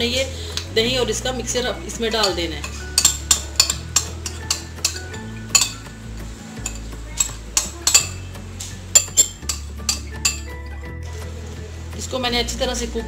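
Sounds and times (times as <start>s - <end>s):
spoon scraping against a bowl: 2.2s - 6.0s, 6.6s - 10.6s.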